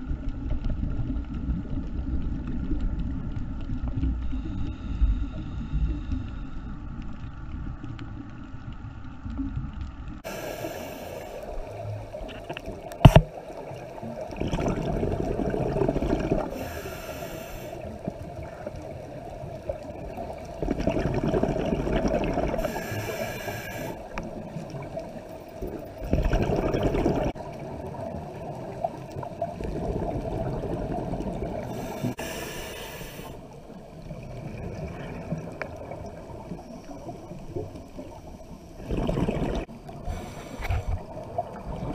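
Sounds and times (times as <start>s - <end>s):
regulator hissing inhale: 4.2s - 6.8s, 10.2s - 11.9s, 16.5s - 18.1s, 22.6s - 24.3s, 31.6s - 33.6s, 39.9s - 41.2s
gurgle of exhaust bubbles: 12.2s - 16.6s, 19.6s - 22.8s, 24.2s - 31.7s, 38.8s - 39.8s.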